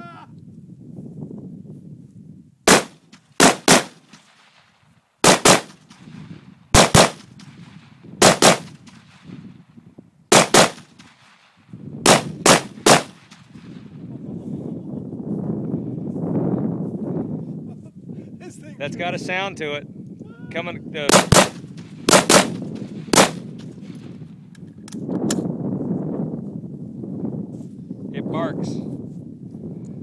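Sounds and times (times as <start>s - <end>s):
rifle shots with echo: 2.7s - 9.3s, 10.3s - 13.8s, 21.1s - 23.7s.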